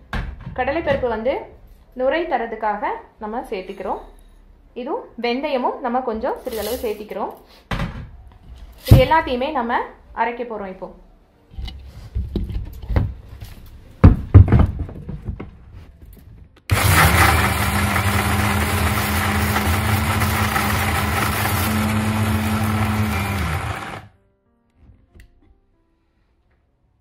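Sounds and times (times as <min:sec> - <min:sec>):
mixer grinder running: 0:16.7 - 0:24.1.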